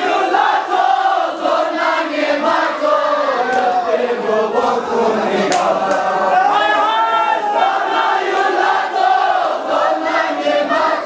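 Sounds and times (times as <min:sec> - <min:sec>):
crowd of men chanting: 0:00.0 - 0:11.0.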